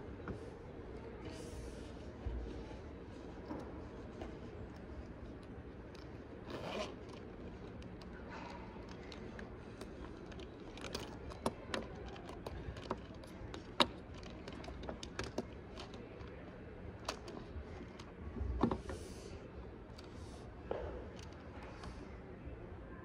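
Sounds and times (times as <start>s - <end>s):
zipper being pulled open: 6.4s - 7.2s.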